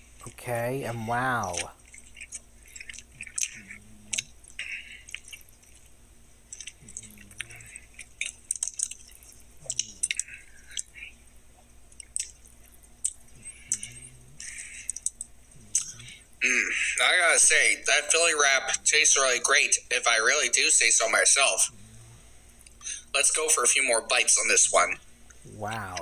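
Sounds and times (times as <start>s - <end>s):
person chewing crispy food: 1.5s - 11.2s, 11.9s - 16.3s.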